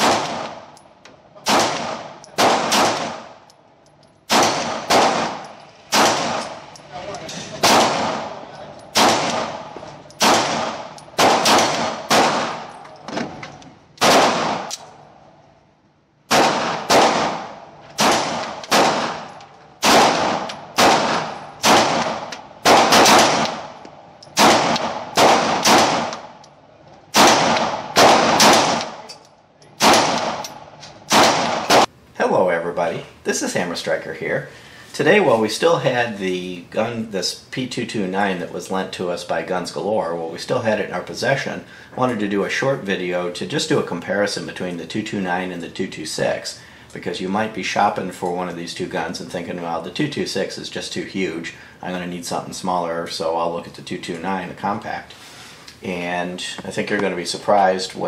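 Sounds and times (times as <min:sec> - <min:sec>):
pistol shots echoing indoors: 0:00.0 - 0:00.8, 0:01.4 - 0:03.5, 0:04.3 - 0:06.8, 0:07.6 - 0:12.8, 0:14.0 - 0:15.1, 0:16.3 - 0:26.5, 0:27.1 - 0:29.1, 0:29.8 - 0:31.9.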